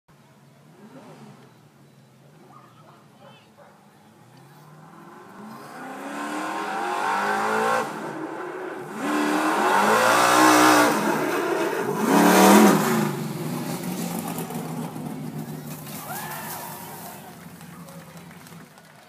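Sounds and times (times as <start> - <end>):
race car engine accelerating: 4.3 - 16.2.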